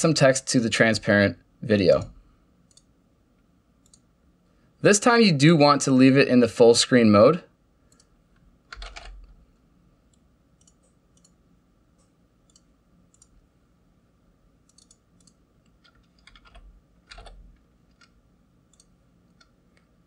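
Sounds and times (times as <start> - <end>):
faint clicks: 2.7 - 2.9, 3.8 - 4.1, 7.9 - 8.4, 17.9 - 19.9
keyboard typing: 8.7 - 9.4, 10.1 - 11.4, 14.7 - 19.8.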